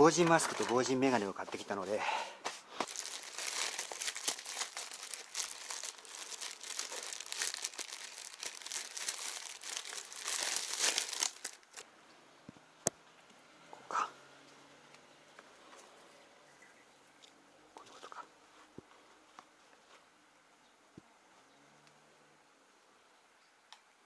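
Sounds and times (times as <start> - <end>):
plastic packaging crinkling: 2.8 - 11.8.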